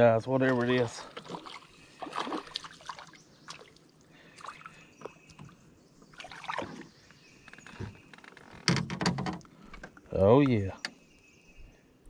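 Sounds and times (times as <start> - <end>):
fish splashing in water: 0.5 - 4.8.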